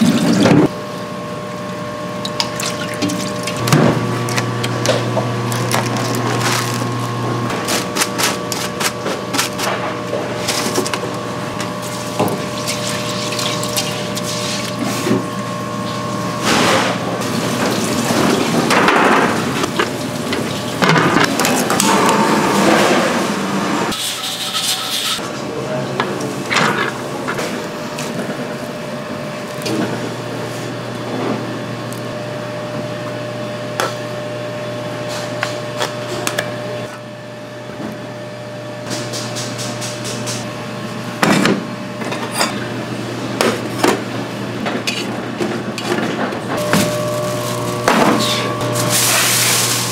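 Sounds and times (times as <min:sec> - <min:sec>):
water sloshing in sink: 0:02.2 - 0:03.8, 0:11.8 - 0:15.3
steady hum: 0:46.4 - 0:49.9.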